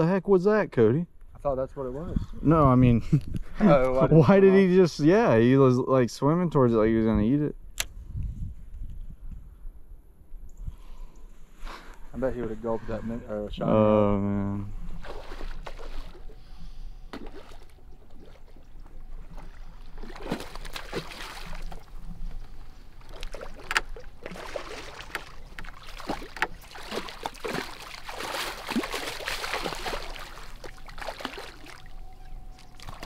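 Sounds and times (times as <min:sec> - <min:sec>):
fish splashing in water: 0:15.0 - 0:16.5, 0:17.1 - 0:22.1, 0:22.9 - 0:33.0.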